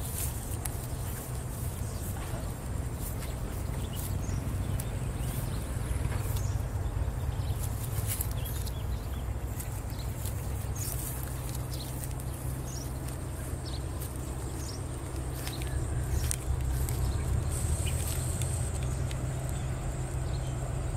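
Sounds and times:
thumps and rustling in grass: 0.0s - 6.8s
steady low rumble: 0.0s - 20.9s.

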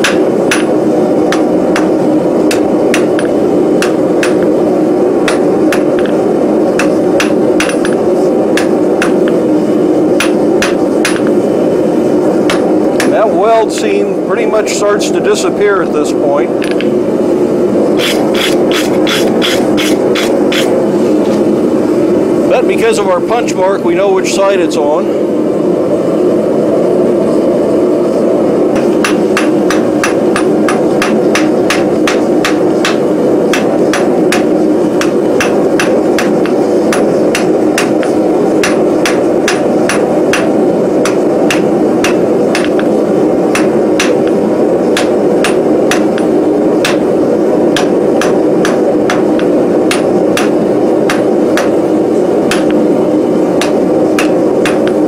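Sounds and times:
hammer striking steel on anvil: 0.0s - 4.5s, 5.2s - 6.2s, 6.8s - 9.3s, 10.2s - 11.4s, 12.4s - 13.3s, 28.8s - 42.9s, 43.5s - 44.3s, 45.0s - 47.1s, 47.8s - 51.8s, 52.5s - 52.8s, 53.6s - 55.0s
steady low hum: 0.0s - 55.0s.

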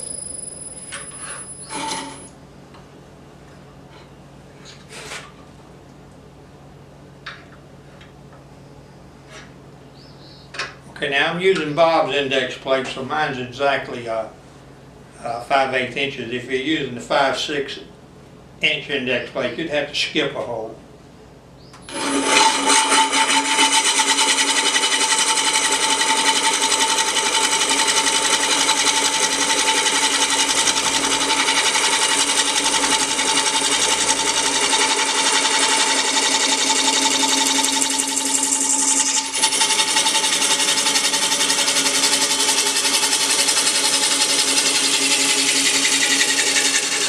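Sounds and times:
wood lathe buzzing whine: 0.0s - 2.4s, 21.8s - 47.0s.

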